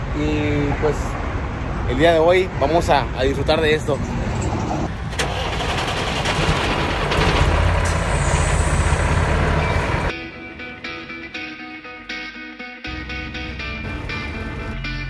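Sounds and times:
diesel truck engine rumbling: 3.2s - 10.1s
guitar music: 9.6s - 15.0s.

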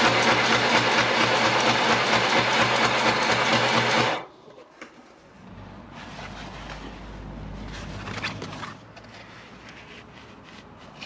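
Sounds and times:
sewing machine stitching: 0.0s - 4.2s.

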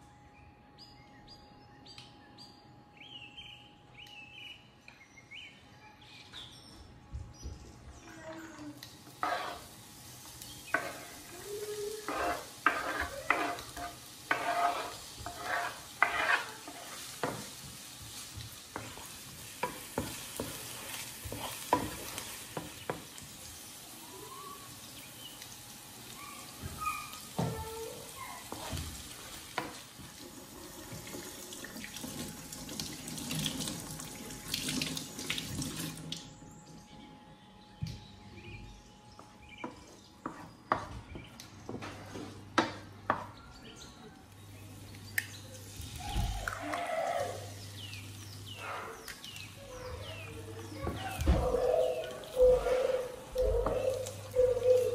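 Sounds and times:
onion sizzling in oil: 8.8s - 35.9s
wooden spatula scraping a pan: 9.0s - 9.8s, 10.6s - 23.0s, 27.4s - 29.8s, 40.2s - 40.9s.

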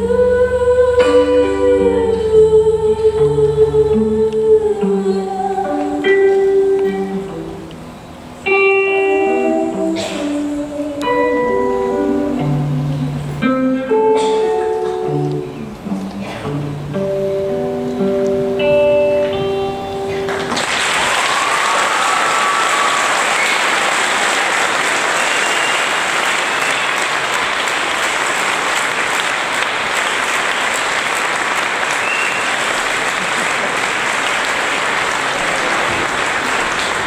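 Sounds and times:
acoustic guitar and singing: 0.0s - 7.7s, 8.5s - 18.4s
audience applauding: 20.2s - 37.0s
whistles from audience: 21.1s - 23.9s, 25.1s - 27.2s, 31.9s - 32.8s.

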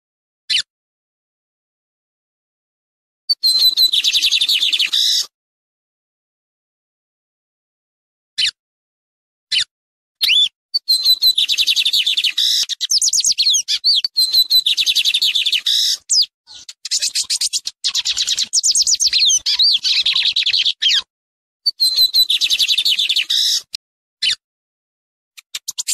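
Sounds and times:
bird singing rapid chirps and trills: 3.3s - 5.3s, 10.2s - 21.1s, 21.7s - 24.4s, 25.4s - 25.9s.

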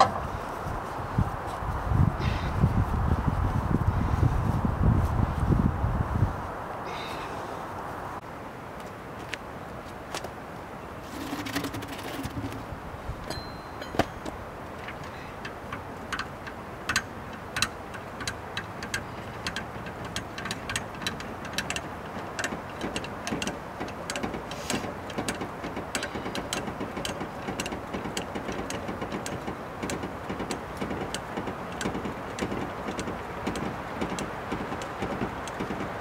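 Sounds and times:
lug wrench clicking on wheel nuts: 13.2s - 36.0s.

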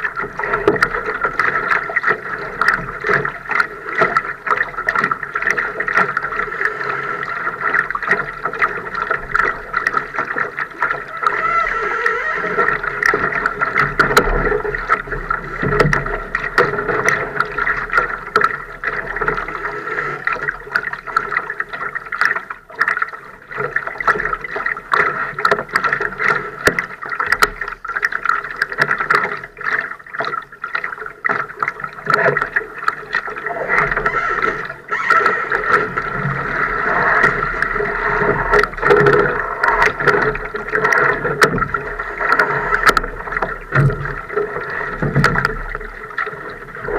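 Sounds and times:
boat knocks and clicks: 0.0s - 6.5s, 7.3s - 46.9s
water splashing along hull: 0.0s - 46.9s.

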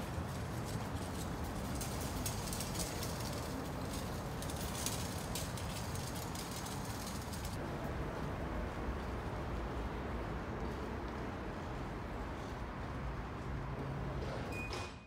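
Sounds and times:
station concourse rumble: 7.2s - 14.7s.

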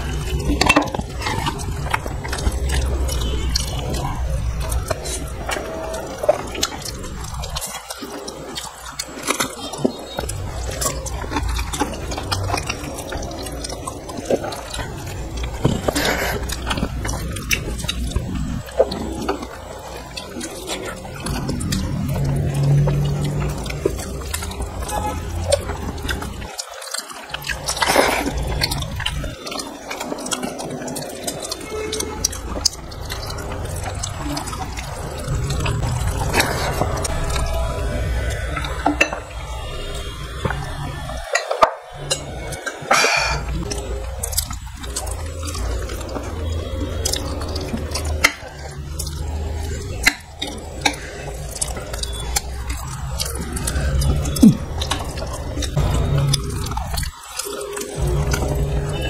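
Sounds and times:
fingers squishing rice and curry: 0.0s - 41.2s
chewing with wet mouth clicks: 0.0s - 59.0s
person drinking from a glass: 42.0s - 59.0s.

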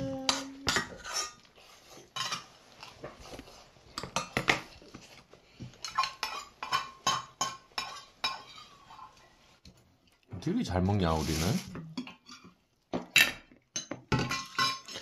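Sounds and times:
spoons clinking on steel bowls: 2.1s - 2.6s, 5.7s - 9.2s, 13.2s - 15.0s.

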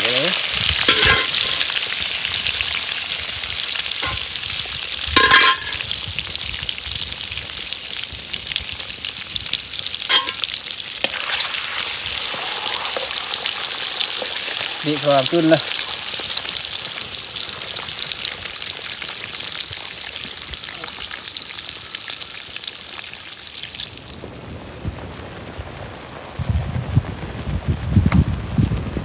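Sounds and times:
food sizzling in hot oil: 0.0s - 24.3s
metal spoon clinking on pot: 0.9s - 1.4s, 5.2s - 5.8s, 10.1s - 10.4s.

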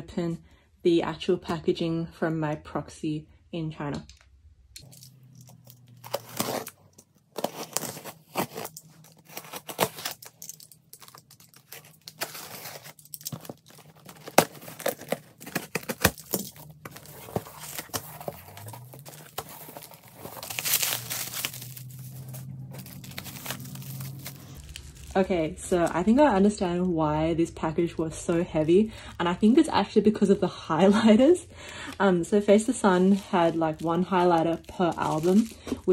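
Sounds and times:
packing tape tearing: 4.8s - 25.2s, 33.1s - 35.9s
plastic wrap crinkling: 4.8s - 27.0s, 32.5s - 35.9s.

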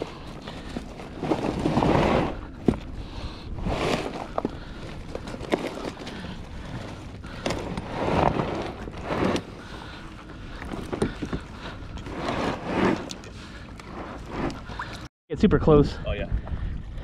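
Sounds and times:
water sloshing around kayak: 0.0s - 15.1s
wind buffeting microphone: 15.6s - 17.0s.

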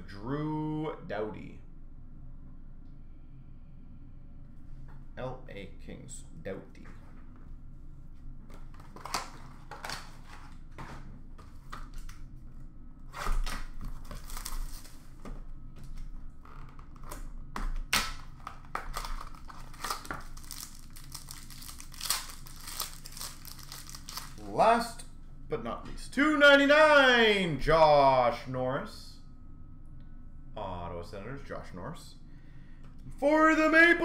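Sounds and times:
card pack wrappers crinkling and tearing: 8.5s - 11.0s, 13.1s - 15.1s, 16.8s - 24.6s.

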